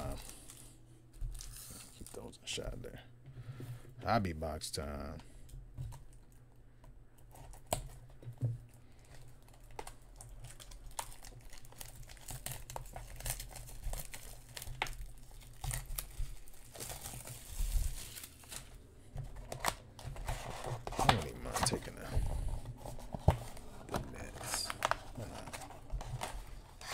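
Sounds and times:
plastic wrap crinkling and tearing: 0:00.0 - 0:02.7, 0:09.0 - 0:22.0, 0:22.8 - 0:26.9.

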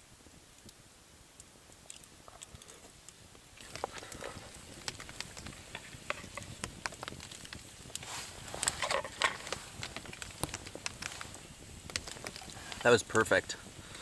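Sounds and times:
campfire crackling and popping: 0:00.0 - 0:14.0
handling noise: 0:03.6 - 0:14.0.

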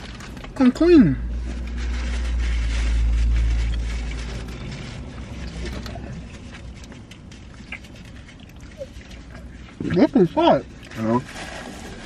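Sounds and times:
small clicks and rustles: 0:00.0 - 0:11.9
deep low rumble: 0:01.2 - 0:09.8.

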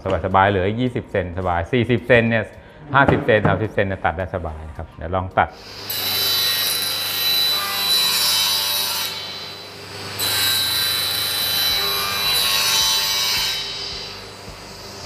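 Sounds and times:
table saw cutting wood: 0:05.6 - 0:15.0.

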